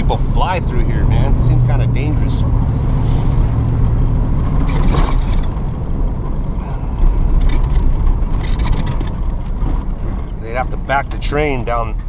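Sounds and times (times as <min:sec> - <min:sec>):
truck engine hum: 0:00.0 - 0:12.0
tyres rumbling on dirt: 0:00.0 - 0:12.0
clicks and rattles: 0:04.6 - 0:05.6, 0:07.4 - 0:10.4.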